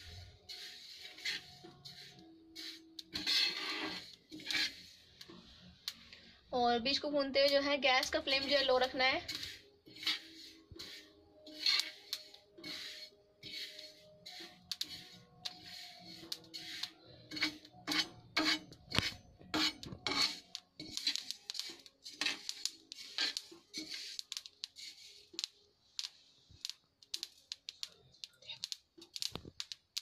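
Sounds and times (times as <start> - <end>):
steel utensil scraping onto plate: 0.0 - 5.5, 8.0 - 25.5
seeds rattling: 0.0 - 6.0, 8.0 - 30.0
metal spatula scraping seeds: 0.0 - 30.0.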